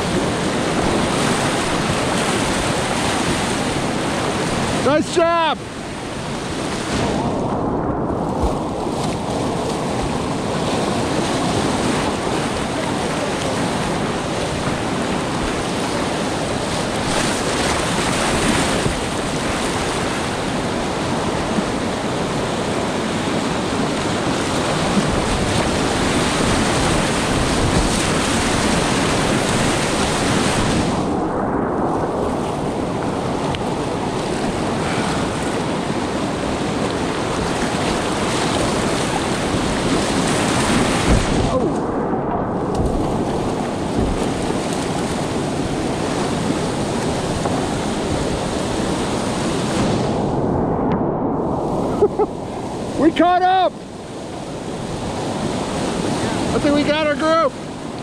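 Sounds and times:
river rapids rushing: 0.0s - 7.6s, 8.6s - 31.0s, 32.8s - 49.8s.

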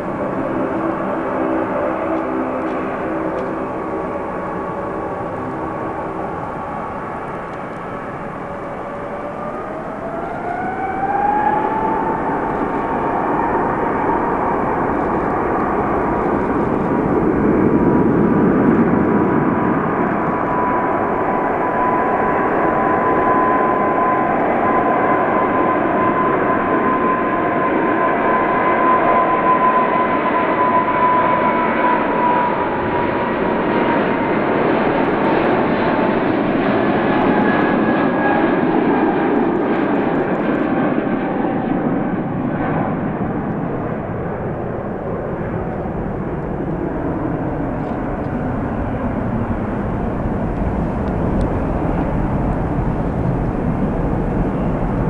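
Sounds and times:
jet engines spooling up: 0.0s - 55.0s.

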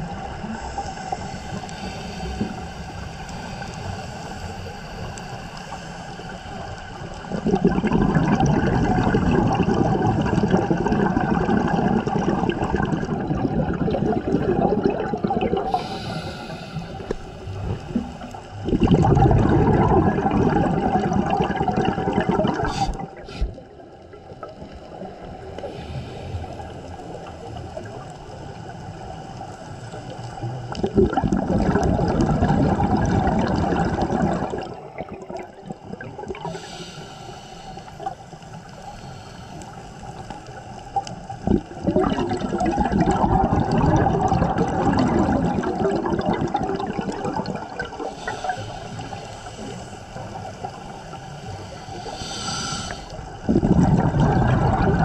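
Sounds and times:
scuba regulator breathing: 0.0s - 8.5s, 12.8s - 23.8s, 24.4s - 27.4s, 36.3s - 41.8s, 47.3s - 55.0s
bubbles rushing on exhale: 6.6s - 25.8s, 30.4s - 36.8s, 40.9s - 55.0s.

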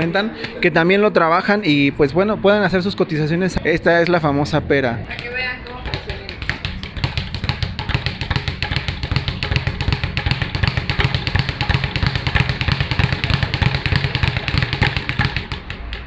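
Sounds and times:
speed bag rattling thuds: 5.1s - 16.0s.

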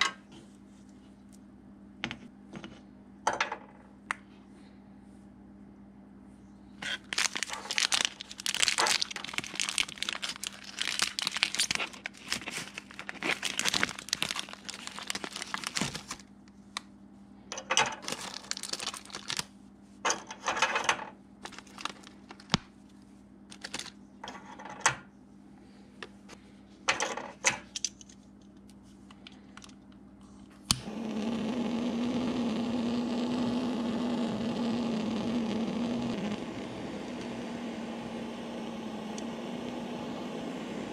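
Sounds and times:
plastic wrapping crinkling: 6.8s - 16.3s, 17.9s - 19.5s, 21.4s - 22.7s, 23.5s - 24.0s
torch flame hissing: 30.7s - 40.9s
torch lighter click: 38.6s - 40.4s.

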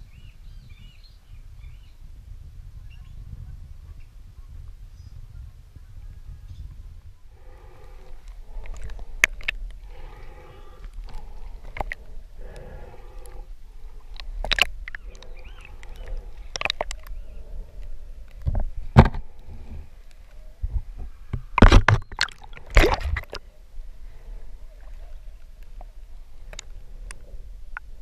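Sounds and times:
water sloshing and gurgling: 7.3s - 28.0s
breathing hiss through snorkel: 7.4s - 14.4s.

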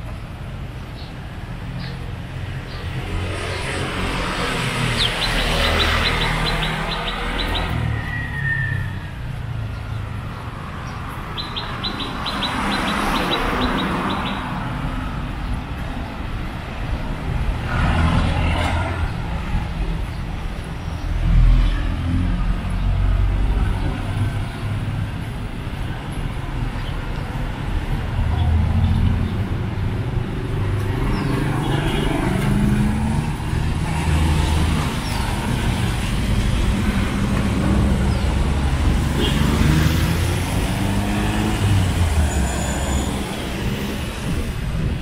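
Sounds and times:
road traffic passing: 0.0s - 45.0s
vehicle passing close: 2.9s - 15.8s, 27.5s - 45.0s
bird chirping trill: 4.8s - 14.6s.

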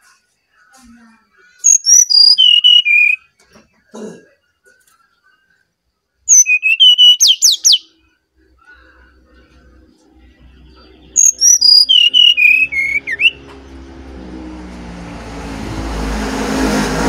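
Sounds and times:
bird singing whistled phrases: 1.6s - 3.3s, 6.3s - 7.9s, 10.7s - 13.4s.

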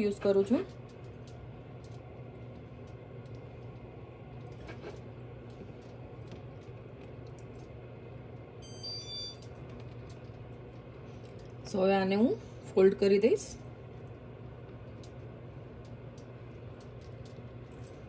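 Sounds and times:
steady low hum: 0.0s - 18.0s
high electronic beeps: 8.6s - 9.4s.

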